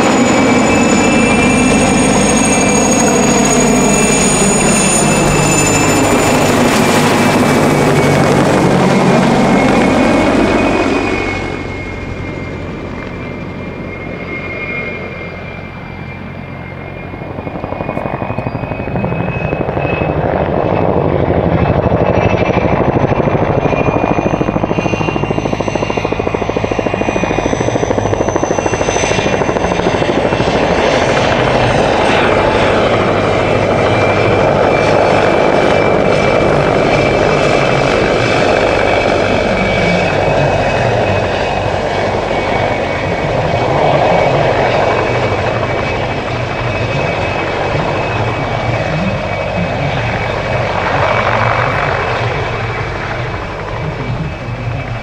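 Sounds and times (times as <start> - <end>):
helicopter rotor chop: 0.0 - 55.0
turbine engine whine: 0.0 - 55.0.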